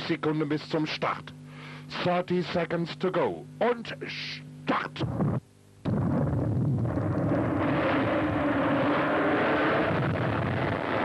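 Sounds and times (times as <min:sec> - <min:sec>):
racing engines pulling away: 0:07.1 - 0:11.0.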